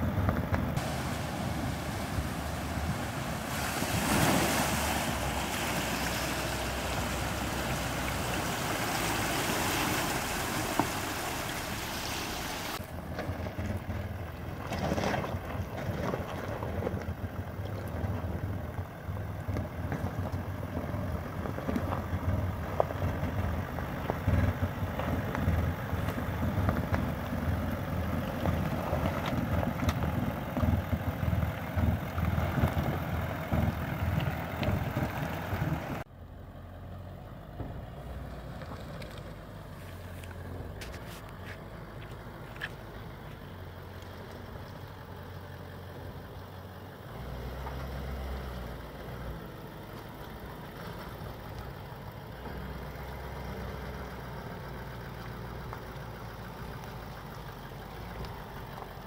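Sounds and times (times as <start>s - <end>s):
stuttering low engine rumble: 0.0s - 59.0s
water rushing and splashing: 0.8s - 18.6s
brake ticks: 16.8s - 36.0s, 38.4s - 46.5s, 49.7s - 59.0s.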